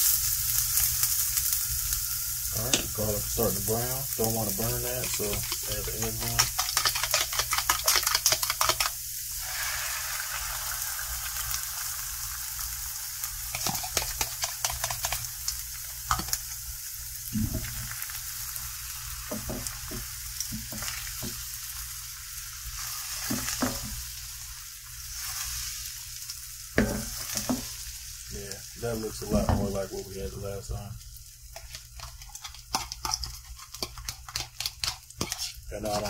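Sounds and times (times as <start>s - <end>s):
eggs sizzling in a skillet: 0.0s - 36.0s
utensil tapping and scraping pan: 4.5s - 8.9s, 13.5s - 15.2s, 31.5s - 36.0s.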